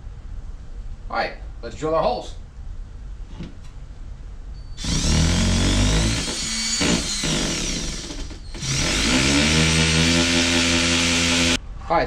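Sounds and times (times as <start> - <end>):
hammer drill boring into concrete: 4.8 - 11.6.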